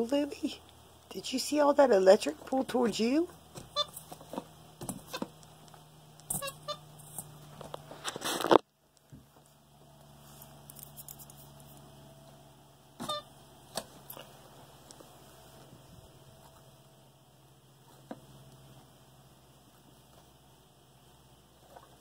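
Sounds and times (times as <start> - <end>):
low steady hum: 0.0 - 22.0
short squeaks: 3.6 - 4.2, 4.9 - 5.3, 6.3 - 6.9, 13.0 - 13.3
rustling scrape: 6.3 - 8.6.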